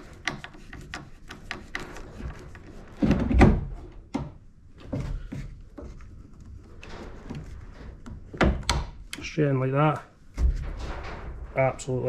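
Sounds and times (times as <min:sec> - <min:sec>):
plastic parts knocking and clicking: 0:00.0 - 0:04.4.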